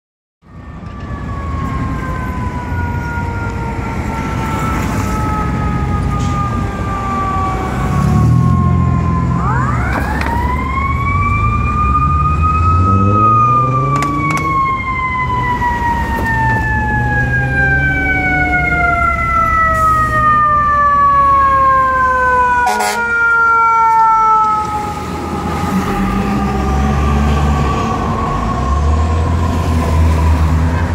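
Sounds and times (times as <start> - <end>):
diesel truck engine revving: 11.0 - 14.8.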